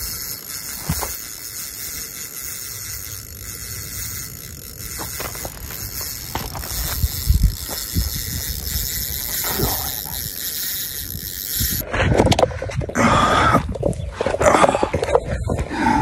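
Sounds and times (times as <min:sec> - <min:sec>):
wind buffeting microphone: 0:03.1 - 0:16.0
handling noise: 0:03.9 - 0:11.8.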